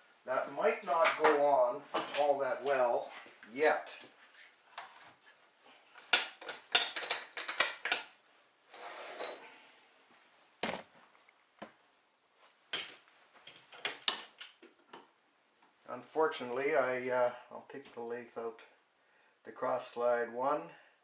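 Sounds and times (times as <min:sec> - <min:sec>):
metal scrape: 0:08.7 - 0:09.5.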